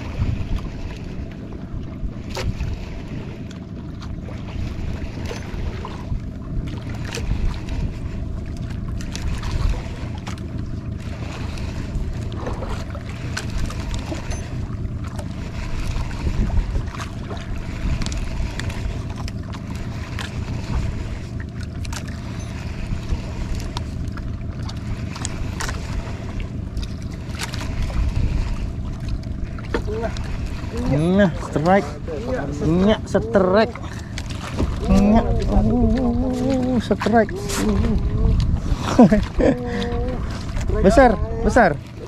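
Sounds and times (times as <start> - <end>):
boat engine running: 0.0 - 42.0
wind noise: 15.6 - 18.6, 27.6 - 41.7.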